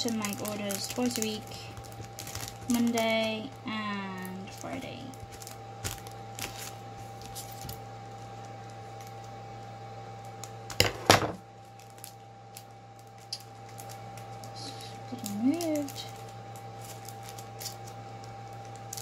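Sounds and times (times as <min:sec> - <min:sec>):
plastic sleeves taps and rustles: 0:00.0 - 0:03.4, 0:04.5 - 0:09.2
electrical hum: 0:00.0 - 0:19.0.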